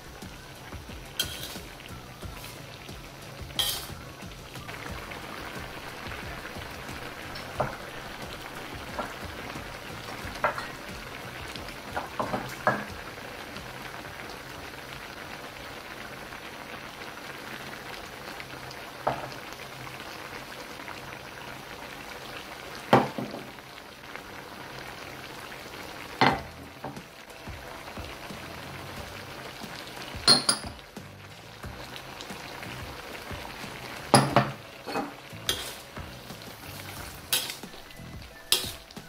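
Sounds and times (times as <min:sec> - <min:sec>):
thick mixture bubbling in a wok: 0:00.0 - 0:39.0
vegetables knocking into wok: 0:11.9 - 0:12.9, 0:26.2 - 0:27.0, 0:34.1 - 0:36.1.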